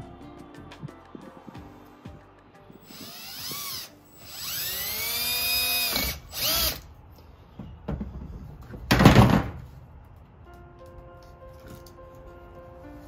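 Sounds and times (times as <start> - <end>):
cordless drill whining: 2.8 - 6.9.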